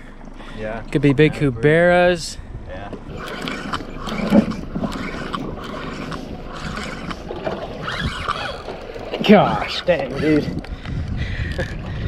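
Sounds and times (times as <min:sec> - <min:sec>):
water lapping against boat hull: 0:03.0 - 0:10.9
sharp clicks: 0:03.1 - 0:09.3.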